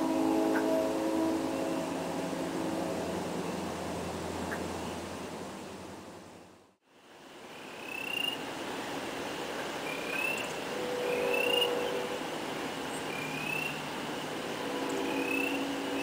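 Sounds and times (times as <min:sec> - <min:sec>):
steady low hum: 0:00.0 - 0:06.8
background hiss: 0:00.0 - 0:16.0
frogs peeping: 0:07.5 - 0:08.4, 0:09.8 - 0:12.1, 0:12.9 - 0:13.9, 0:14.7 - 0:16.0.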